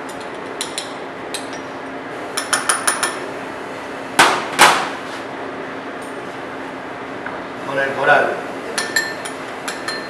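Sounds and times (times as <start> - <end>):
spoon clinking ceramic dishes: 8.8 - 10.0.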